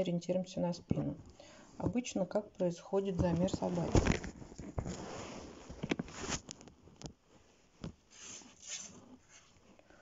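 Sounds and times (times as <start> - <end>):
rustling handling noise: 3.0 - 9.8.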